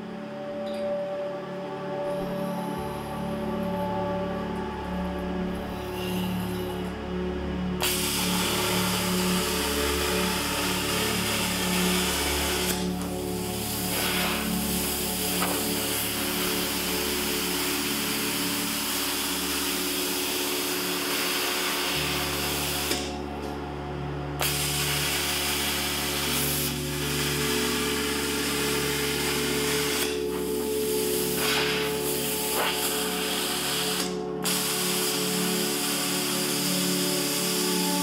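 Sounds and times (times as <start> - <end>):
plasma cutter hissing: 7.8 - 23.2, 24.4 - 38.0.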